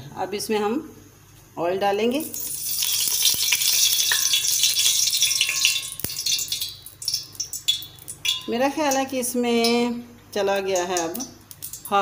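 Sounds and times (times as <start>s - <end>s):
oil hissing in hot pot: 2.2s - 8.4s
oil crackling: 2.3s - 9.0s.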